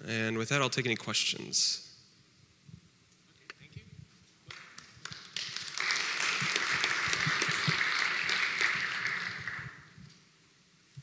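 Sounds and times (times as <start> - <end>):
audience applauding: 4.5 - 9.9.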